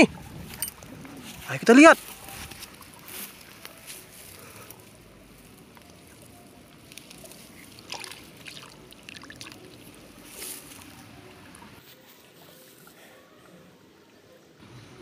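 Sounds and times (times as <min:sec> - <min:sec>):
hand sloshing in pond water: 0:02.0 - 0:13.7.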